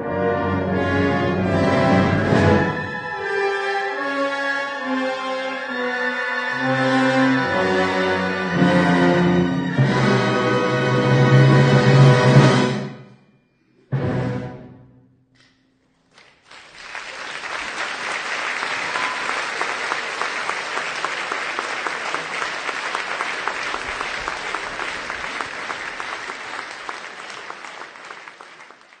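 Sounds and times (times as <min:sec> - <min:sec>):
orchestral chord: 0:00.0 - 0:13.0
audience applause: 0:16.2 - 0:29.0.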